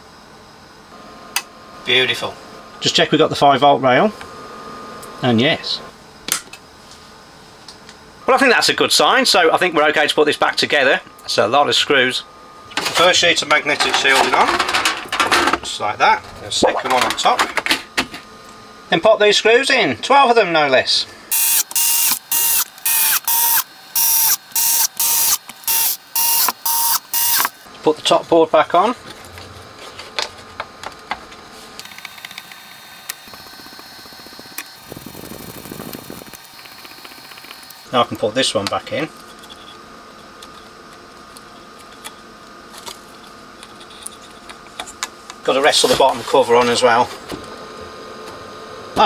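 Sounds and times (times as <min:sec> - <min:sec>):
faint background hum: 0:00.0 - 0:49.0
electric screwdriver whining: 0:21.3 - 0:27.6, 0:31.8 - 0:37.9.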